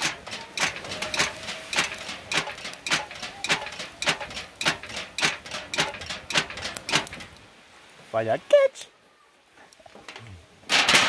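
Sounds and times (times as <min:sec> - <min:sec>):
lid swishing as a fan: 0:00.0 - 0:07.4.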